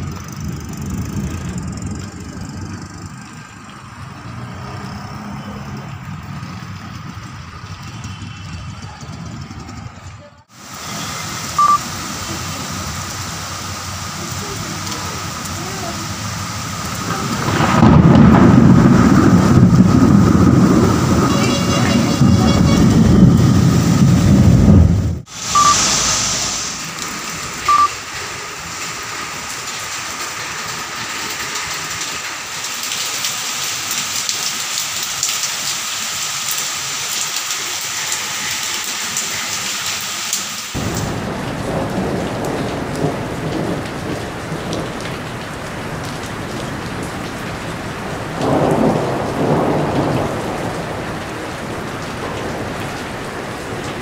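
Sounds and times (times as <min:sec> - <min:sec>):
heavy rain: 0:00.0 - 0:09.7, 0:10.4 - 0:54.0
thunder rumbling: 0:00.0 - 0:10.1, 0:10.7 - 0:28.4, 0:40.8 - 0:54.0
short beeps: 0:11.6 - 0:11.8, 0:25.5 - 0:26.1, 0:27.6 - 0:28.0.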